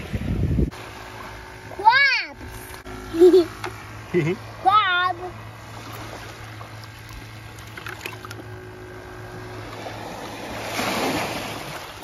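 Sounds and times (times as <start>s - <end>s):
wind buffeting microphone: 0.0s - 0.8s
small waves lapping on shore: 0.0s - 12.0s.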